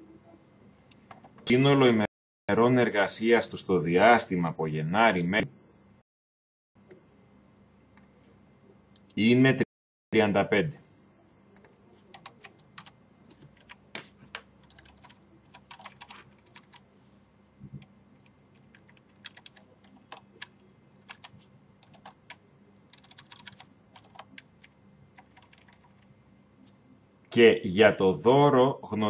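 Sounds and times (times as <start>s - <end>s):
keyboard typing clicks: 11.6s - 16.8s, 17.8s - 26.1s.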